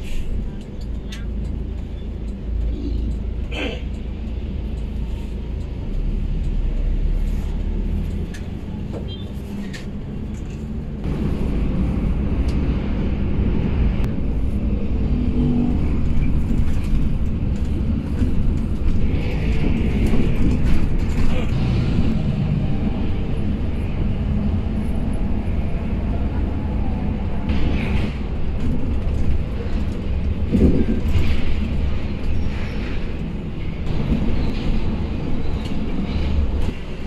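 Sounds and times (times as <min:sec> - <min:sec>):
bus engine and road rumble: 0:00.0 - 0:37.0.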